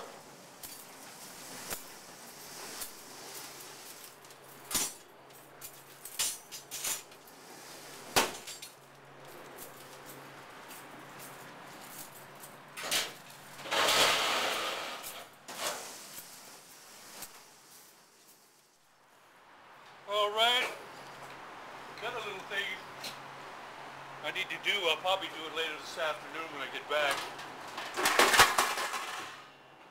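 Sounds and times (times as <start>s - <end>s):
wire racks clattering: 0.0s - 17.9s, 27.0s - 29.5s
racks scraping across floor: 0.0s - 18.6s, 27.0s - 29.6s.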